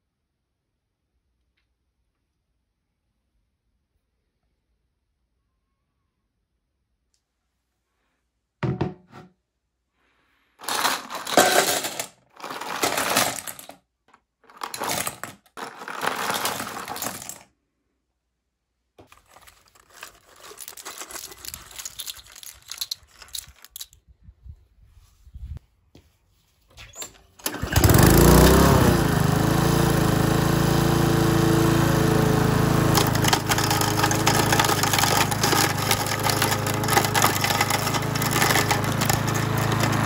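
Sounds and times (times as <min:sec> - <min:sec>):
plastic toys clattering into bowl: 0:10.6 - 0:17.5, 0:19.0 - 0:24.0, 0:32.9 - 0:40.0
plastic toys rattling onto grass: 0:19.1 - 0:24.0, 0:33.0 - 0:40.0.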